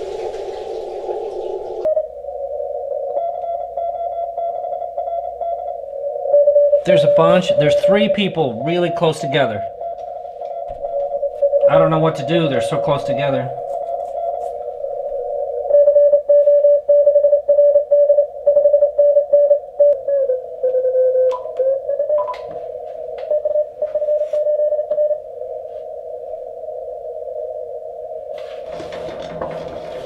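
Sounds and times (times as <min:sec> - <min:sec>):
radio static hiss: 0:00.0 - 0:15.8
morse code tones: 0:01.8 - 0:25.2.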